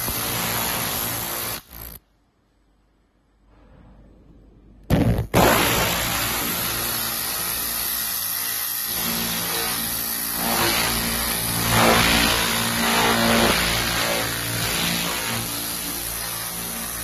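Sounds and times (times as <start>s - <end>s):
low hum: 2.4s - 6.7s.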